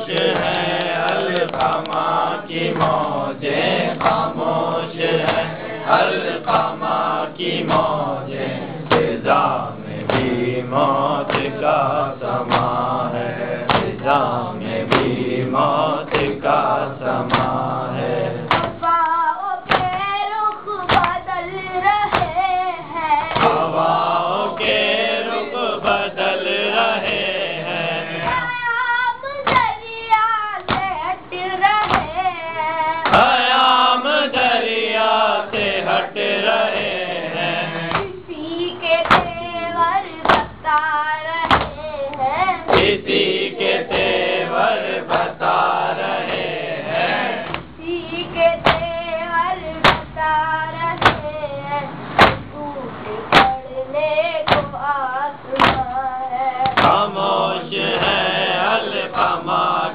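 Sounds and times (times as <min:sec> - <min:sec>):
voices joining in chant: 0:00.0 - 0:18.7, 0:23.3 - 0:28.7, 0:33.0 - 0:38.1, 0:42.6 - 0:51.1, 0:56.6 - 0:59.9
boy chanting: 0:00.0 - 0:59.9
rhythmic chest slapping: 0:00.0 - 0:59.9.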